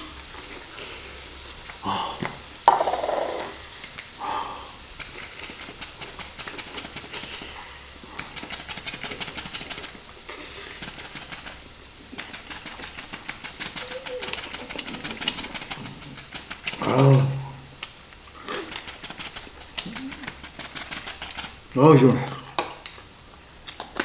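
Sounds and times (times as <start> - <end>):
seasoning shaker rattling: 2.4 - 4.2, 4.8 - 22.0.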